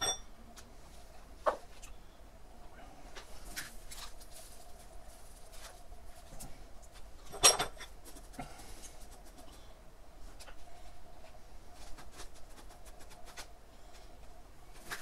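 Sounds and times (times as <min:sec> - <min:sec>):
fingers scratching potting mix: 0:07.9 - 0:09.7, 0:11.8 - 0:13.6.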